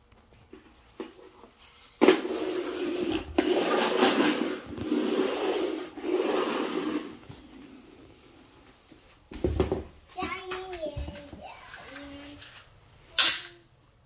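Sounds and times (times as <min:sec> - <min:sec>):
toy truck wheels rolling on wood floor: 0:00.6 - 0:08.0.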